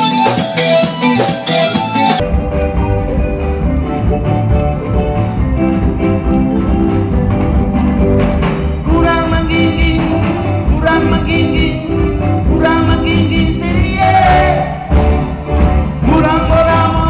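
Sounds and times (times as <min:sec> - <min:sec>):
live rock band playing: 0:00.0 - 0:17.0
steady drum beat: 0:00.0 - 0:17.0
lead vocal singing: 0:08.8 - 0:17.0.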